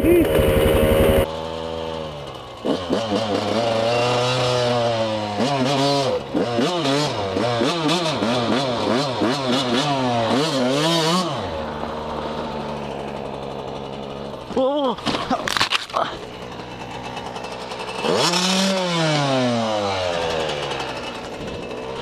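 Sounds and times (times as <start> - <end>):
dirt bike engine revving: 0.0 - 22.0.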